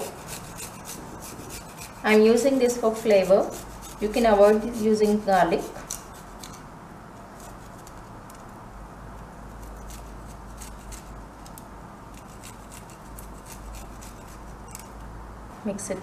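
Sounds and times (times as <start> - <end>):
garlic grated on metal grater: 0.0 - 6.6, 9.6 - 14.9.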